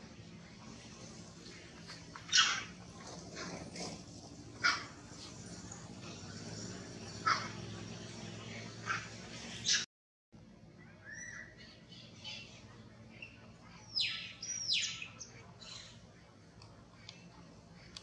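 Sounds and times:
birds chirping: 0.2 - 9.9, 10.7 - 18.0
loud whistled bird calls: 10.8 - 11.7, 14.0 - 15.2.

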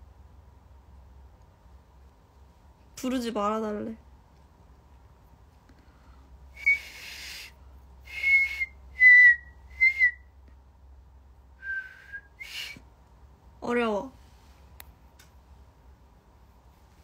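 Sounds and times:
woman whistling: 6.6 - 7.5, 8.1 - 10.2, 11.6 - 12.8.

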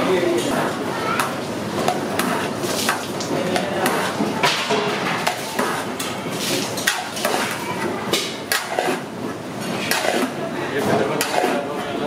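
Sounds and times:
metal spatula scraping a wok: 9.8 - 10.4, 11.1 - 11.7.

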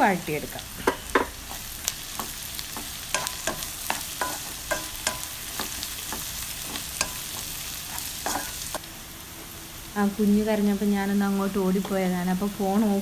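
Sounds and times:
onions sizzling in hot oil: 0.0 - 13.0
spatula scraping and knocking pan: 0.8 - 8.8.

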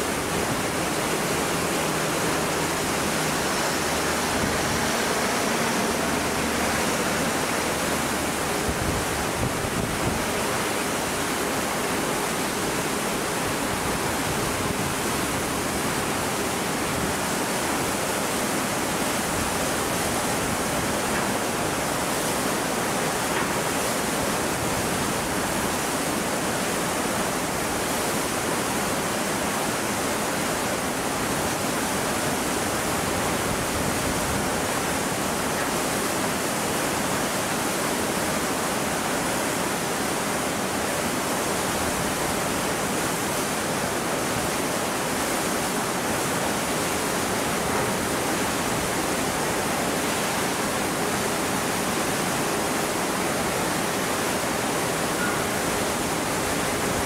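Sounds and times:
steady rushing noise: 0.0 - 37.8.

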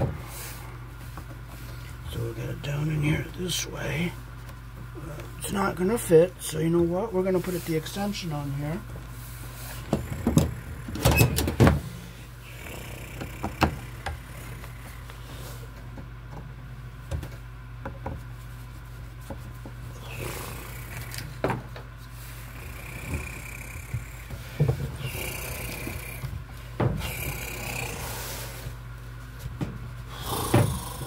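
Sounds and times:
steady low hum: 0.0 - 31.0.

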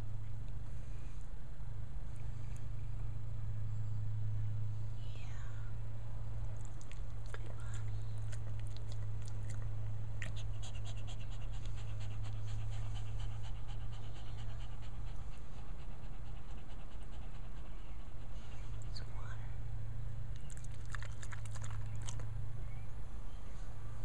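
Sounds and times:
steady low hum: 0.0 - 24.0
dog panting: 6.7 - 19.1.

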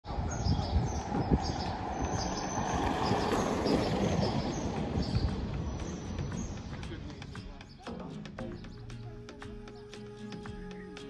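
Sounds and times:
outdoor rumble: 0.0 - 7.4
wind buffeting microphone: 0.0 - 7.6.

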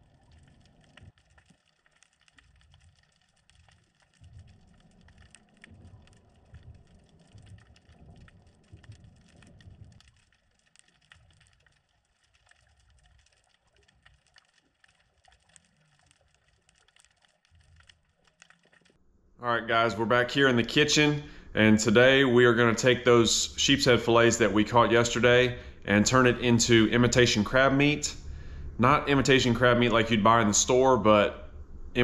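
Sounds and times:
tiny crackling clicks underwater: 0.0 - 19.0
low rumble: 4.2 - 10.2, 19.4 - 32.0.

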